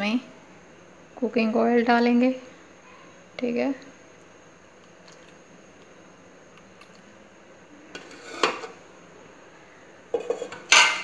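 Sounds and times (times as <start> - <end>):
metal cookware clinking: 8.0 - 8.8, 10.1 - 11.0
spoon scraping metal pan: 8.0 - 8.8, 10.1 - 11.0.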